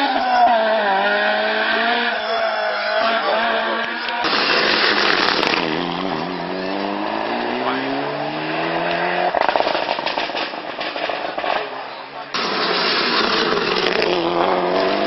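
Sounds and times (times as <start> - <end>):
rally car engine accelerating: 3.1 - 10.9, 12.4 - 15.0
rapid exhaust crackling: 3.8 - 15.0.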